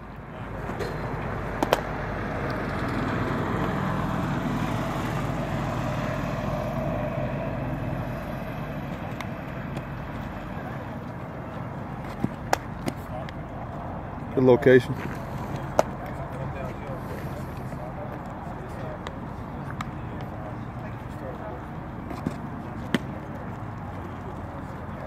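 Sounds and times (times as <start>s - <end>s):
outdoor background noise: 0.0s - 25.0s
baseball hitting leather glove: 0.7s - 2.0s, 12.0s - 13.1s, 22.1s - 23.2s.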